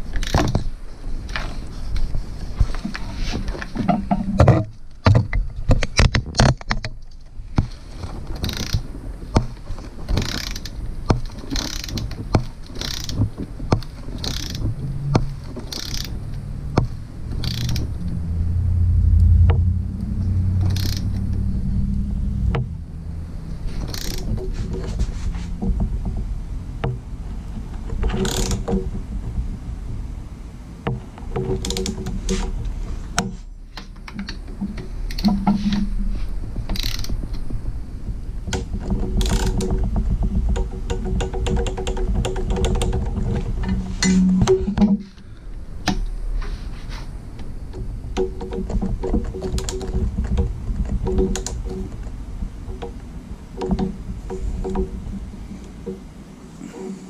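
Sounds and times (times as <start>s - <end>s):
torque wrench ratchet clicking: 8.4s - 8.8s, 10.2s - 10.7s, 11.5s - 12.2s, 12.8s - 13.2s, 14.2s - 14.6s, 15.7s - 16.2s, 17.4s - 17.9s, 20.6s - 21.2s, 23.9s - 24.3s, 28.2s - 28.6s, 36.7s - 37.2s.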